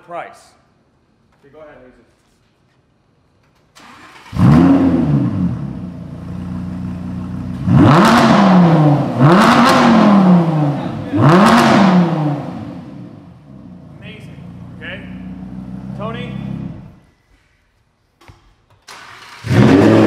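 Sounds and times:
sports car engine revving: 4.0s - 17.0s, 19.2s - 20.0s.

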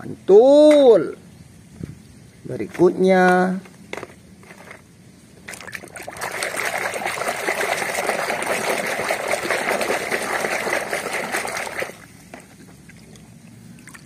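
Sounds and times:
hand splashing in basin water: 5.5s - 12.1s.

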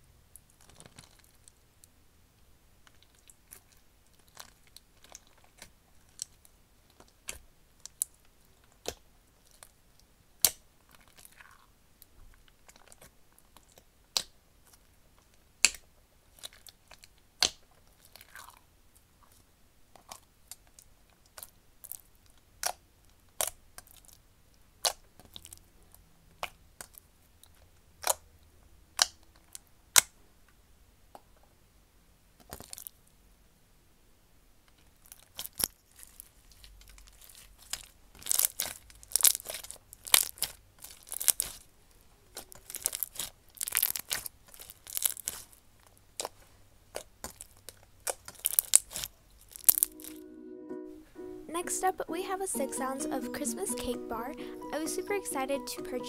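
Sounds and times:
slime being squished by hand: 32.4s - 32.9s, 35.0s - 41.7s, 42.3s - 49.9s
beads popping and crackling: 35.1s - 41.7s, 42.4s - 45.6s, 46.9s - 50.2s.

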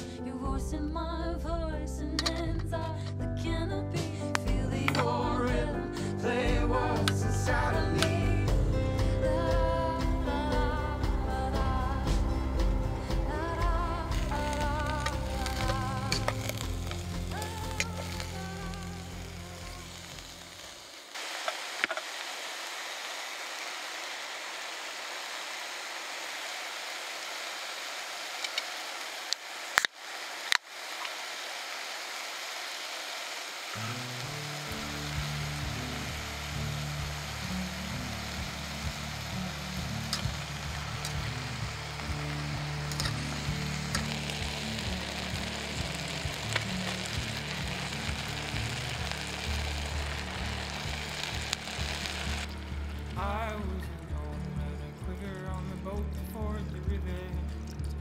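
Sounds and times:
background music: 0.0s - 20.9s, 33.7s - 58.0s
food sizzling in a pot: 4.9s - 54.6s.

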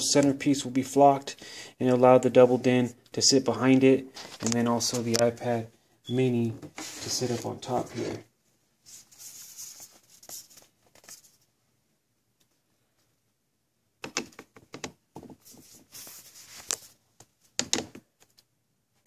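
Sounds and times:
soft handling rustle: 4.1s - 5.6s, 6.6s - 8.2s, 8.8s - 11.5s, 15.2s - 17.4s.

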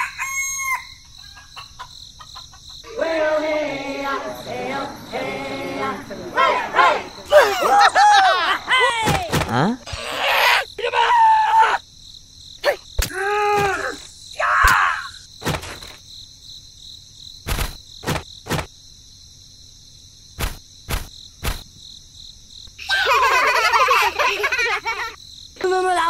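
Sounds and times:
high insect chirring: 0.1s - 26.0s.

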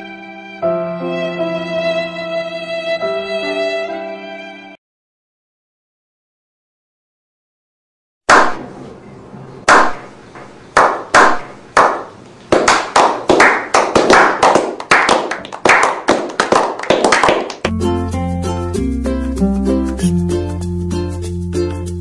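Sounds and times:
group slow clapping: 8.3s - 8.6s, 9.7s - 10.1s, 10.8s - 17.7s.

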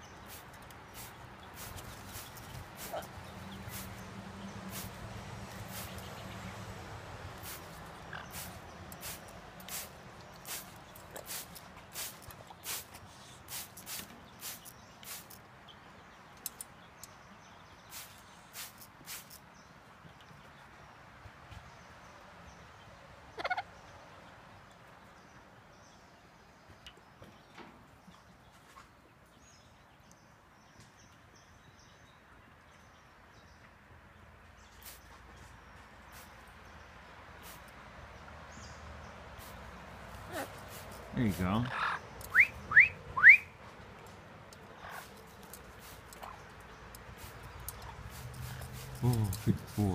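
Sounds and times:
water spray hissing bursts: 0.1s - 6.3s, 7.2s - 15.4s, 17.9s - 19.4s, 34.8s - 35.0s, 36.1s - 36.4s, 37.4s - 37.8s, 39.2s - 42.6s, 44.9s - 46.2s, 46.8s - 49.9s
high bird chirps: 39.4s - 43.6s.

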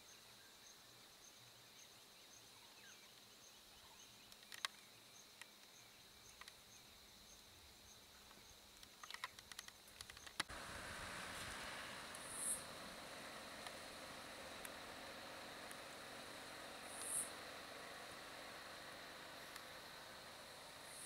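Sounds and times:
faint insect-like chirp: 0.0s - 21.0s
steady high whine: 10.5s - 21.0s
soft clicks: 14.5s - 14.8s.

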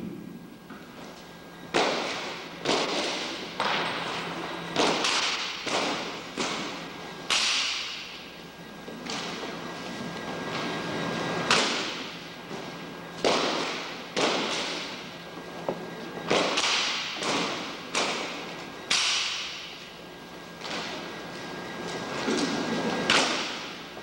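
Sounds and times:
rifles slapped and caught: 1.7s - 3.8s, 4.8s - 8.2s, 9.0s - 9.4s, 11.5s - 12.0s, 13.2s - 15.0s, 16.3s - 19.8s, 22.3s - 23.8s.

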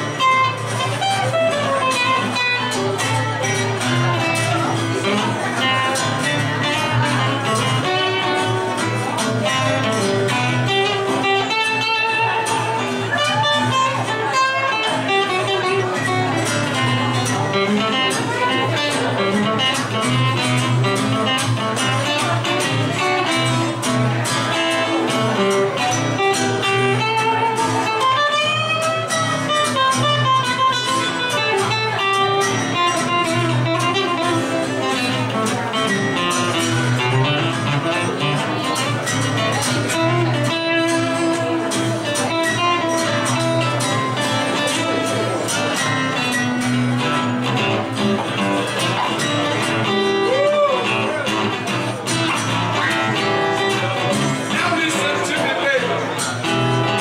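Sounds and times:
harmonica playing a lead line: 0.0s - 48.5s
acoustic guitars picked and strummed: 0.0s - 57.0s.

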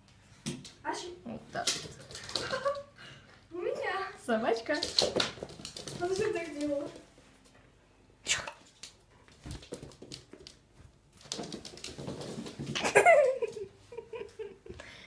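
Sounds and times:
puppy scuffling: 4.4s - 7.6s, 8.7s - 14.2s.

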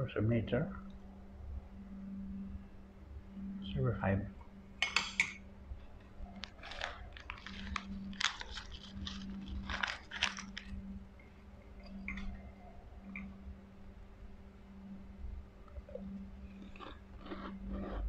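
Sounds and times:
low steady hum: 0.0s - 18.0s
crunching close to microphone: 6.0s - 10.9s, 16.5s - 18.0s.

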